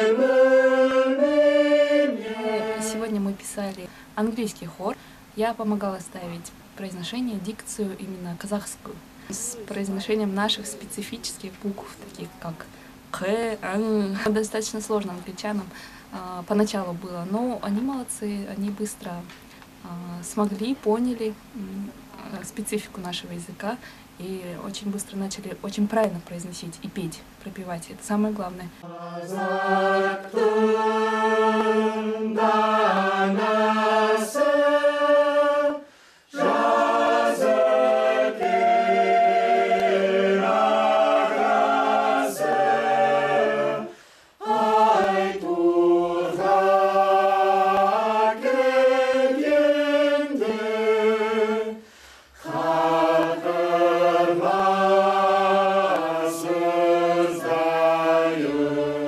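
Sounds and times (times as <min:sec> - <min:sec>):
mixed choir singing: 0:00.0 - 0:03.4, 0:28.8 - 0:51.8, 0:52.4 - 0:59.0.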